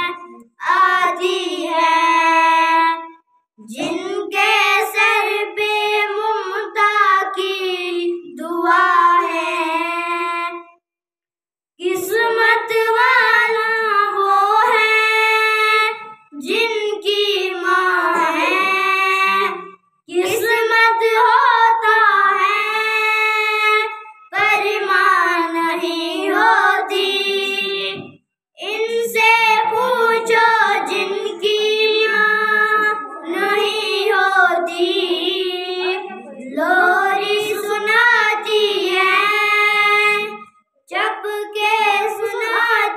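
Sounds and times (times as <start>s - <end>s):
boy singing unaccompanied: 0.0s - 10.7s, 11.8s - 42.9s.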